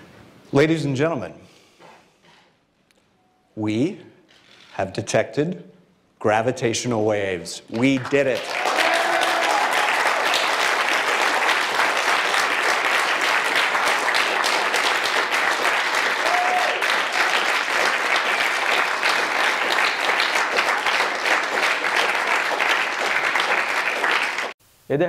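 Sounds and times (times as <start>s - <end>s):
audience applauding: 7.7s - 24.6s.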